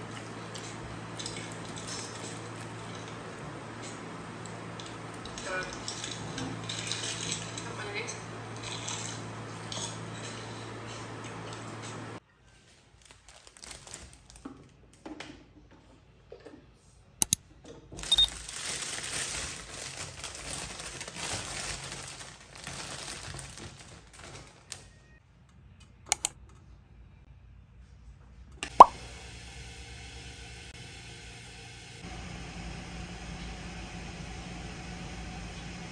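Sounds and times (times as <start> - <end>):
plastic bag rustling: 12.7 - 14.4, 18.0 - 24.8.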